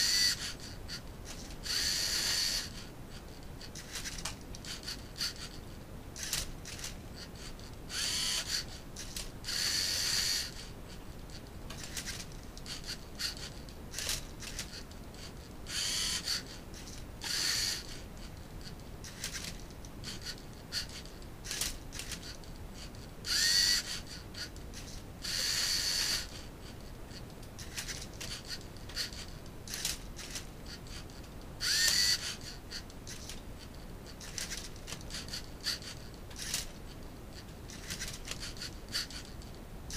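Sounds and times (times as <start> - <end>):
electric motors whirring: 0.0 - 2.9, 3.7 - 5.6, 6.2 - 10.8, 15.7 - 18.1, 23.2 - 26.8, 31.6 - 33.4.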